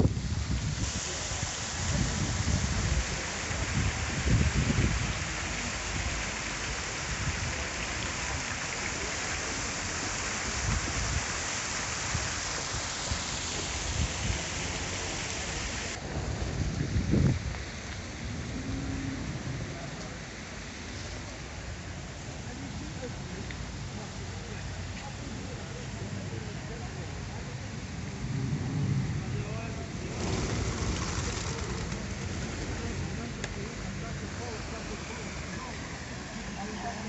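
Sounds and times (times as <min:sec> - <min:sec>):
wind rumbling on microphone: 0:00.0 - 0:08.2, 0:10.4 - 0:22.1, 0:27.2 - 0:34.4
falling water hissing: 0:00.0 - 0:28.6, 0:29.3 - 0:37.0.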